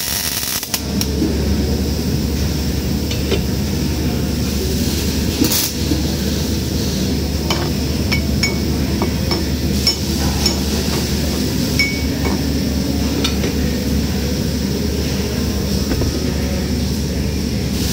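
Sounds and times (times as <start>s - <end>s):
welding arc crackle: 0.0s - 1.0s, 4.8s - 5.9s
welder humming: 0.0s - 17.9s.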